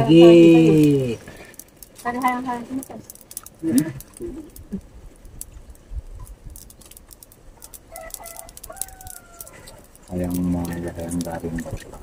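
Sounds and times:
rooster crowing: 0:07.9 - 0:09.8.

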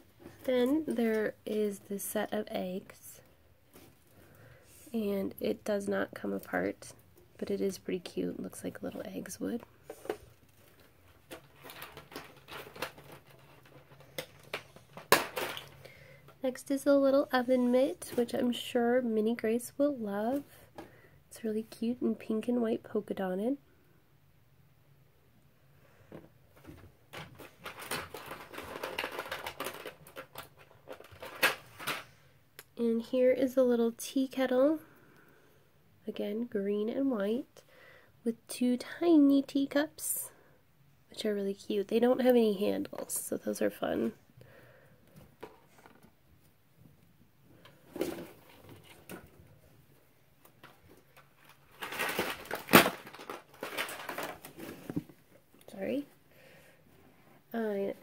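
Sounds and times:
plastic toys clicking and rustling: 0:09.9 - 0:15.9, 0:26.7 - 0:32.2, 0:50.5 - 0:54.8
plastic pieces rattling: 0:11.1 - 0:15.8, 0:27.1 - 0:32.1, 0:50.6 - 0:54.8.

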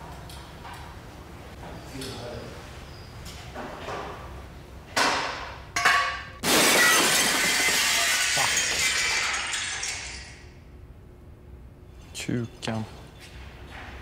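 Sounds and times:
glass shattering crash: 0:06.4 - 0:10.4.

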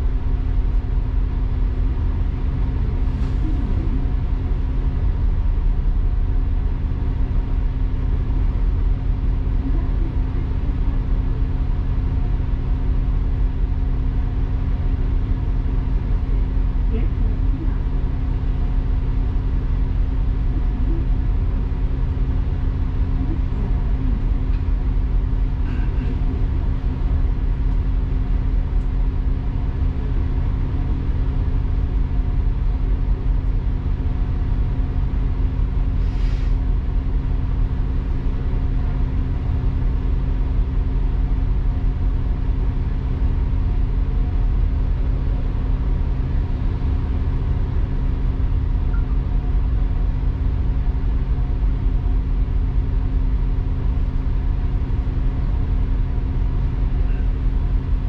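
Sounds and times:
bus engine and road rumble: 0:00.0 - 0:58.0
short hiss: 0:36.0 - 0:36.6.

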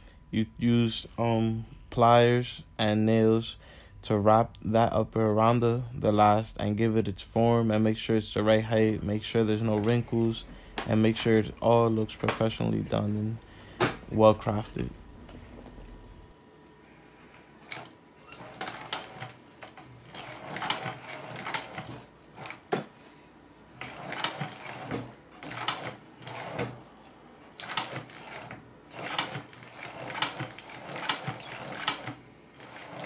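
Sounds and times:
sewing machine clattering: 0:17.6 - 0:22.9, 0:23.8 - 0:26.8, 0:27.5 - 0:33.0.

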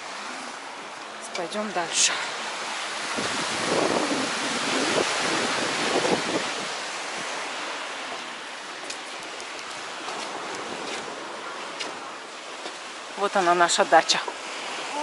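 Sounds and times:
surf washing ashore: 0:00.0 - 0:15.0
wind buffeting microphone: 0:02.7 - 0:13.3.

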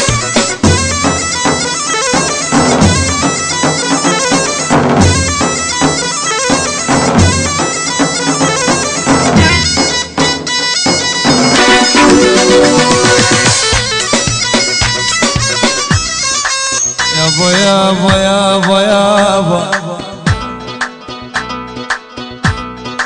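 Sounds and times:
driving drum beat: 0:00.0 - 0:16.3, 0:17.0 - 0:21.0
reedy wind instrument melody: 0:10.5 - 0:14.3.

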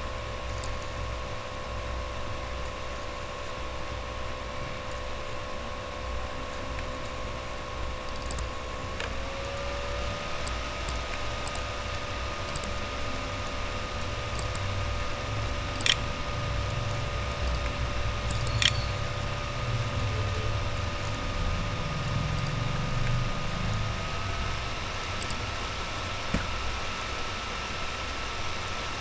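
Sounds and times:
background hum: 0:00.0 - 0:29.0
steady whining tones: 0:00.0 - 0:29.0
computer mouse clicking: 0:00.6 - 0:00.9, 0:08.0 - 0:09.2, 0:10.4 - 0:11.7, 0:12.4 - 0:12.8, 0:14.0 - 0:14.7, 0:15.7 - 0:16.0, 0:17.4 - 0:18.9, 0:22.3 - 0:23.2, 0:25.2 - 0:25.4.

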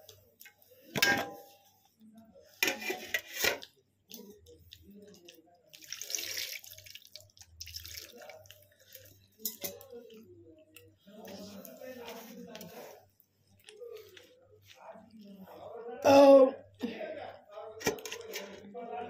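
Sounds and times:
water pouring from metal vessel: 0:05.7 - 0:09.8.

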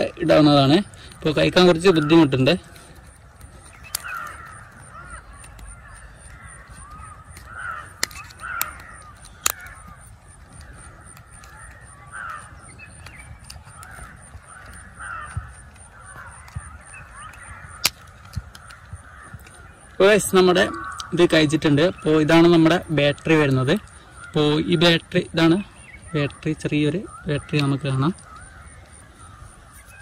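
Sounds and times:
birds calling: 0:00.0 - 0:30.0
plastic clicks of prying: 0:05.3 - 0:19.6.

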